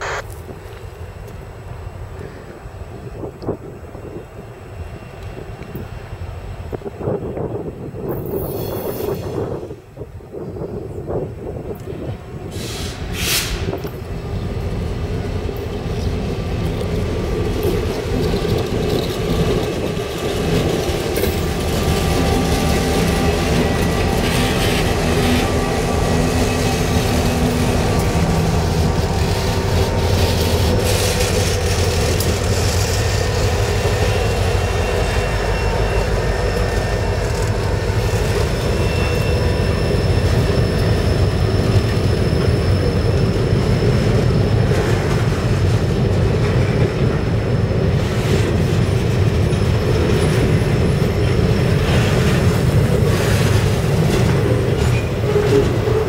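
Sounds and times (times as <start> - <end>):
diesel locomotive engines: 0.0 - 56.0
train wheels clattering on rails: 11.7 - 56.0.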